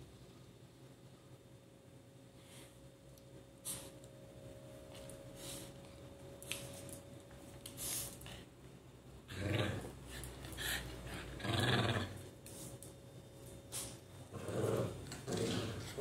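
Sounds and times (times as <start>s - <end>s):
small dogs play-growling: 9.2s - 12.6s, 14.2s - 16.0s.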